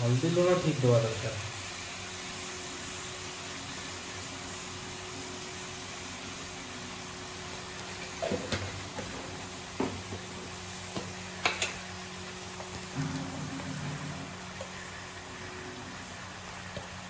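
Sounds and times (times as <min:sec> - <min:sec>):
steady hiss with low hum: 0:00.0 - 0:17.0.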